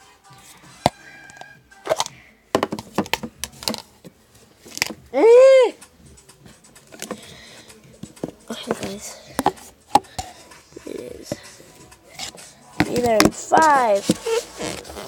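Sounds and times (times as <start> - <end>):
phone handling clicks and knocks: 1.9 - 3.8, 8.0 - 10.3
high-pitched voice cry: 5.1 - 5.8.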